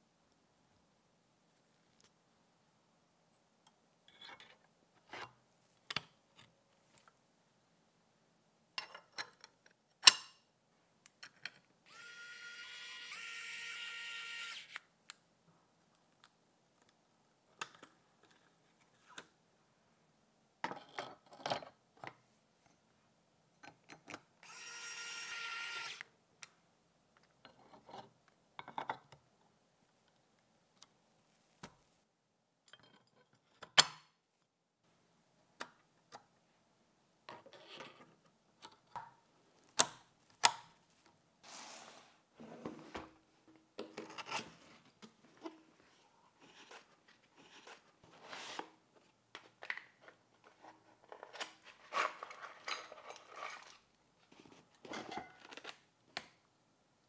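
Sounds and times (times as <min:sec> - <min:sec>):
electric screwdriver whining: 0:11.9 - 0:14.8, 0:24.4 - 0:26.0.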